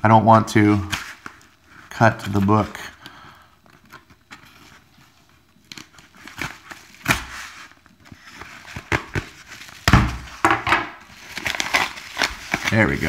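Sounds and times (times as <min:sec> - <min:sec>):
paper mailer crackling and rustling: 0:05.7 - 0:13.0.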